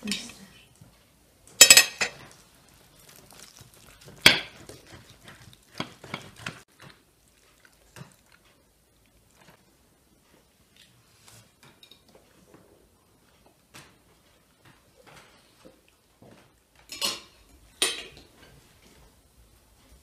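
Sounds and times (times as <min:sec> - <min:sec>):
cutlery clinking on plates: 0:01.6 - 0:02.3, 0:16.8 - 0:18.3.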